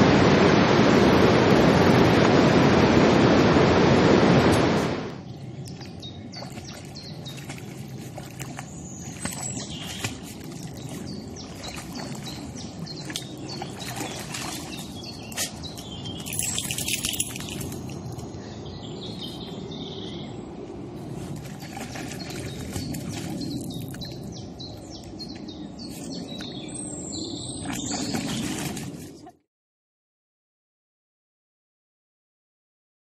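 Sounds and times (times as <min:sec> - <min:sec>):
water wash: 0:00.0 - 0:18.1, 0:21.0 - 0:25.2, 0:27.7 - 0:29.4
small birds chirping: 0:05.2 - 0:20.4, 0:21.5 - 0:29.0
dog splashing in water: 0:05.8 - 0:18.1, 0:21.2 - 0:24.4, 0:27.6 - 0:29.4.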